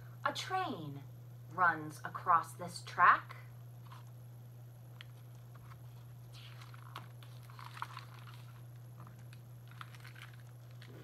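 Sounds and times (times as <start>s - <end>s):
faint low hum: 0.0s - 11.0s
paper rustling of page turning: 5.1s - 11.0s.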